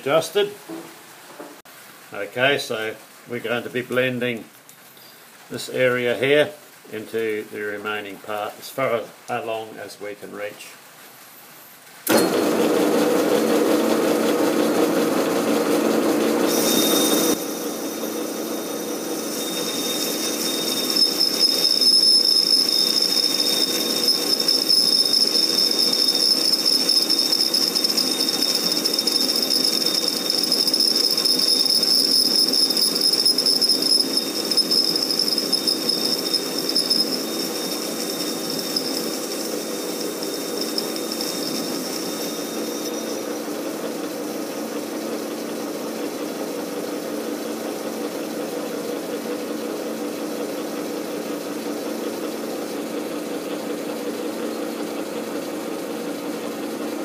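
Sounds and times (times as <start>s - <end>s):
metal lathe cutting: 12.1s - 47.9s
thin high steady tone: 16.5s - 44.9s.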